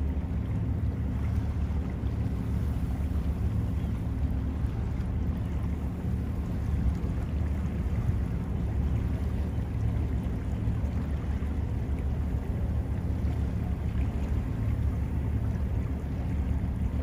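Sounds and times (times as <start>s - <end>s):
boat engine rumble: 0.0s - 17.0s.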